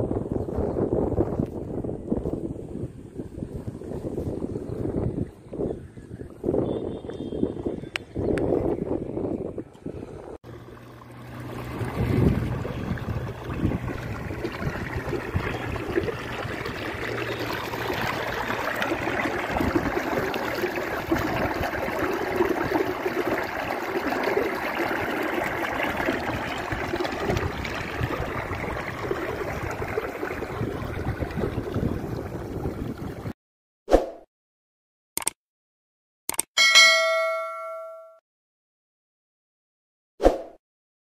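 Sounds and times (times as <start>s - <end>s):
water gushing and splashing: 10.4s - 33.4s.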